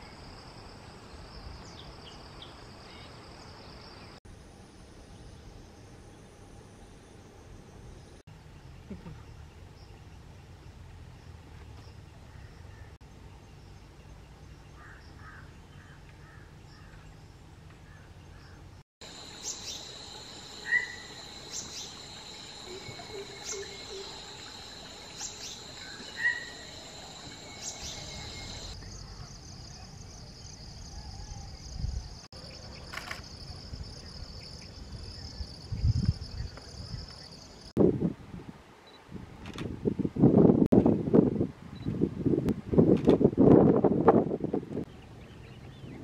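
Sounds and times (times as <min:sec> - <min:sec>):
high-pitched insect drone: 0:19.0 - 0:28.8
sharp bird calls: 0:20.6 - 0:24.2, 0:25.1 - 0:28.8.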